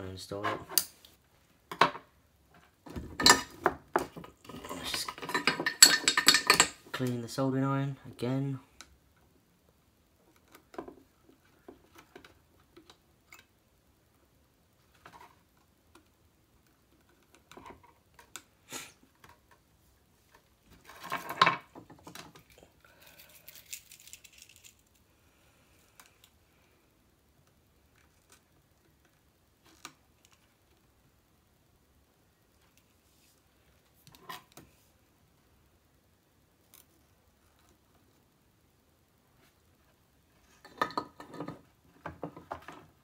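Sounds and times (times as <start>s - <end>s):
hands handling wires and tools: 2.6s - 7.2s, 20.3s - 25.0s.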